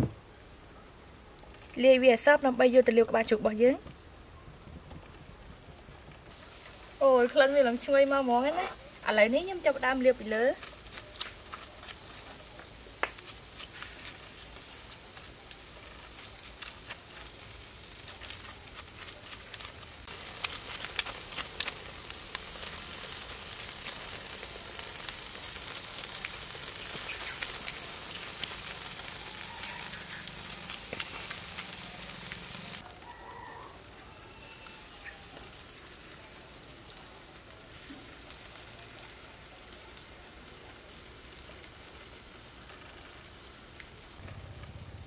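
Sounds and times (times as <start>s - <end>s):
meat sizzling on a grill: 6.0s - 45.0s.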